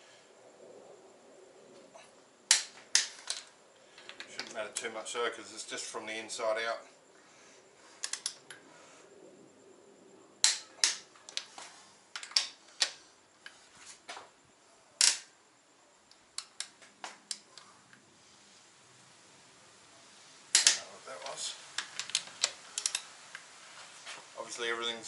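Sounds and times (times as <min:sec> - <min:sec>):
torque wrench clicks and snaps: 0:08.0 - 0:08.6, 0:15.0 - 0:15.3, 0:20.5 - 0:20.8, 0:21.8 - 0:23.4.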